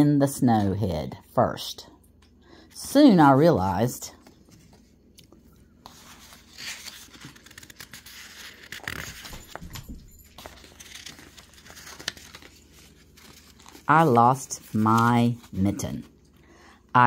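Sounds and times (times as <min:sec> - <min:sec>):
paper rustling and crinkling: 0:04.2 - 0:16.1.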